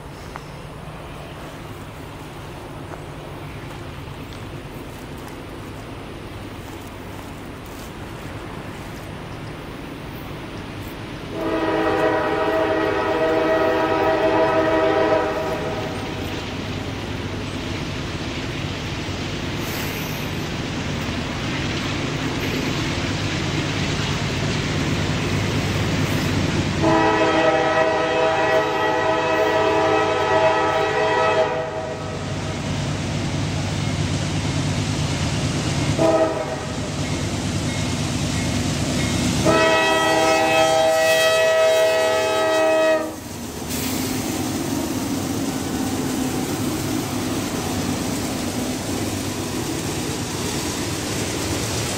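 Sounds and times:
train rumble: 0.0s - 51.9s
locomotive air horn blasts: 11.3s - 16.2s, 26.8s - 32.2s, 36.0s - 36.8s, 39.4s - 44.0s.

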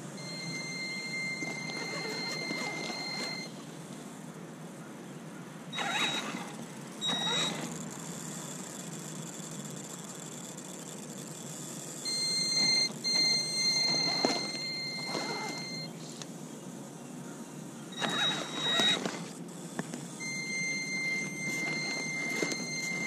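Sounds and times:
high-pitched electronic whine: 0.0s - 3.6s, 5.8s - 16.1s, 20.2s - 23.0s
electric motor whine: 0.0s - 4.2s, 5.8s - 16.4s, 17.8s - 23.0s
tyres crunching gravel: 12.6s - 15.9s.

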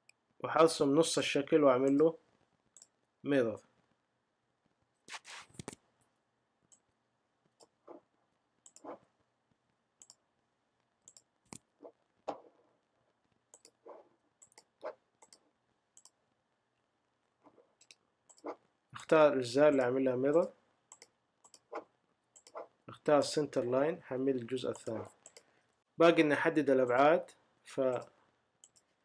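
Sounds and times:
computer mouse clicking: 8.6s - 9.0s, 10.0s - 10.2s, 11.0s - 11.7s, 13.5s - 15.4s, 16.0s - 16.2s, 17.8s - 18.6s, 20.3s - 21.8s, 22.4s - 22.6s, 24.7s - 25.5s, 28.6s - 28.9s.

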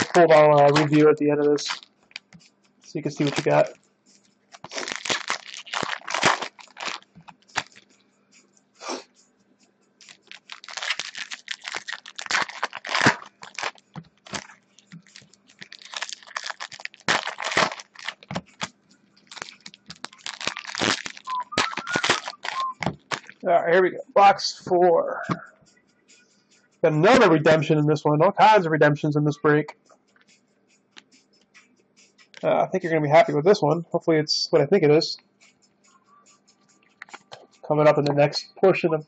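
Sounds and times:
foil wrappers crinkling: 0.0s - 2.3s, 3.0s - 3.8s, 4.5s - 7.9s, 10.0s - 23.4s.

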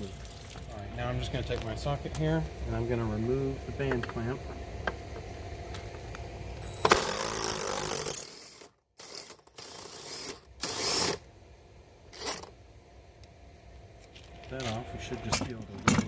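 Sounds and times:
impact driver running: 6.6s - 11.2s.

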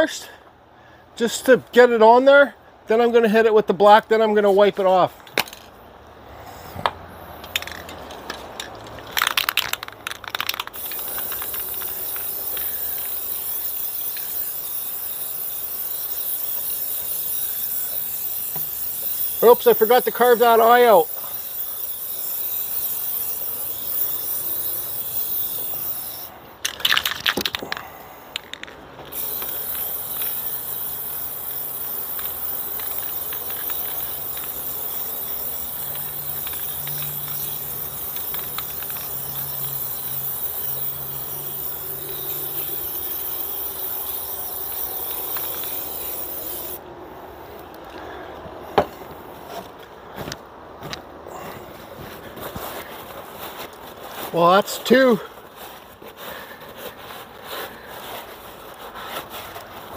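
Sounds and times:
spray paint can hissing: 9.2s - 27.6s, 28.4s - 46.8s.

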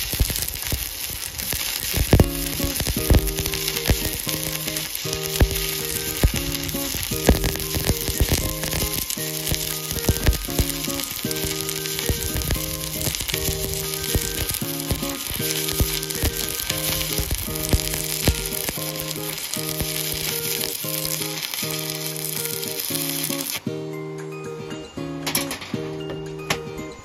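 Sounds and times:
welding arc crackling and sizzling: 0.0s - 23.8s
background music with held chords: 2.1s - 27.0s.

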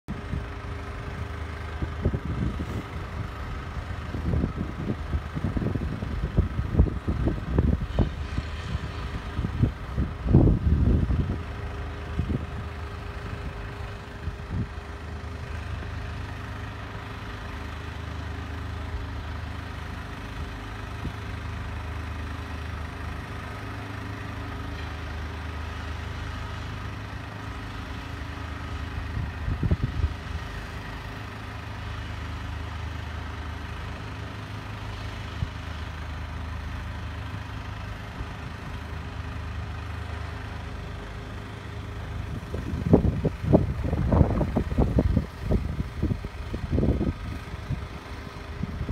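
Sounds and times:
diesel engines running: 0.1s - 48.9s
wind buffeting microphone: 1.2s - 15.0s, 29.1s - 30.4s, 42.2s - 48.9s.

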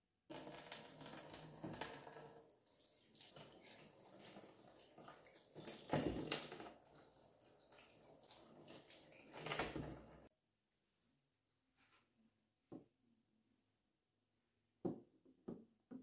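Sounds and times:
tap running into sink: 0.3s - 2.4s, 5.1s - 7.1s, 8.4s - 10.3s
hands rinsing vegetables: 0.3s - 10.3s.

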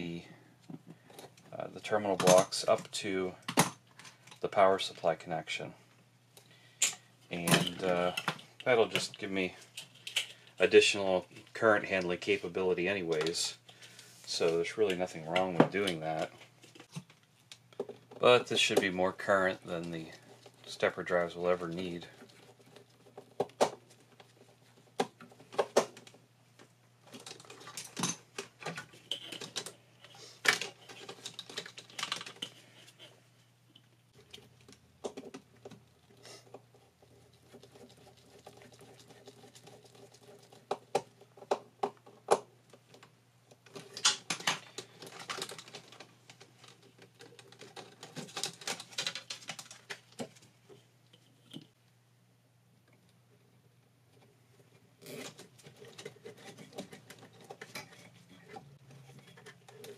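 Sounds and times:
wires being handled: 13.1s - 51.8s, 52.9s - 59.9s.

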